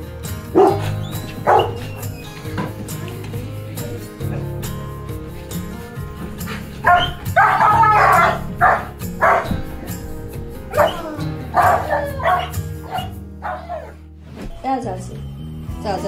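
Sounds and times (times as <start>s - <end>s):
background music: 0.0s - 16.0s
dog barking excitedly: 0.5s - 2.8s, 6.2s - 14.0s.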